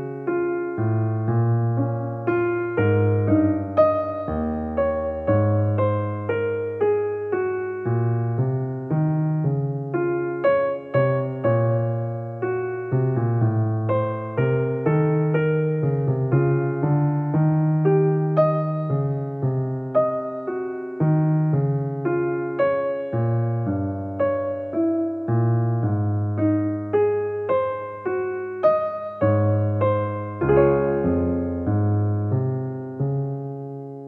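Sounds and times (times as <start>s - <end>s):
slow electric piano melody: 0.0s - 34.0s.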